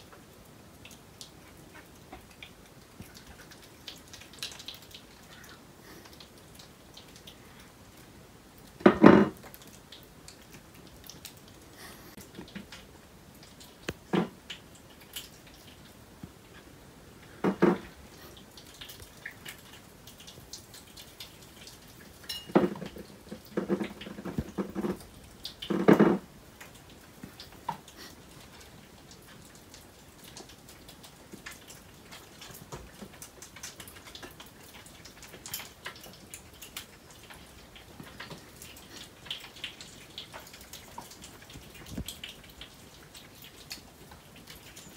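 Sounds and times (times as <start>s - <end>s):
knocks and clatters of plates: 8.8s - 9.4s, 17.4s - 17.9s, 22.3s - 25.0s, 25.6s - 26.2s.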